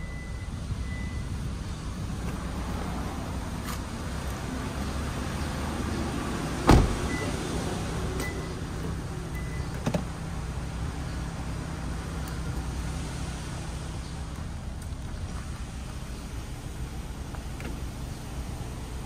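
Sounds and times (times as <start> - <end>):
sharp thump: 6.7 - 7.0.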